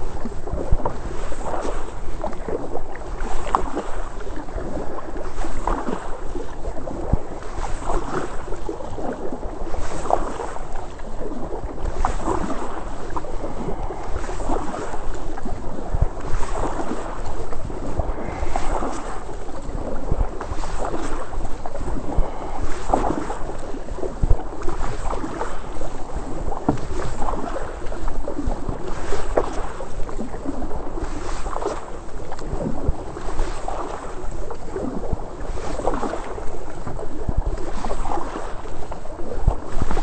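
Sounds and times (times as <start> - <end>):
kayak paddle splashing: 0.0 - 40.0
wind rumble on microphone: 0.0 - 40.0.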